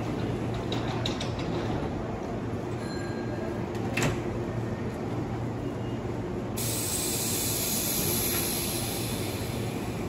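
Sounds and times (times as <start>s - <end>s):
electric train low hum: 3.4s - 10.0s
compressed air hissing: 6.6s - 10.0s.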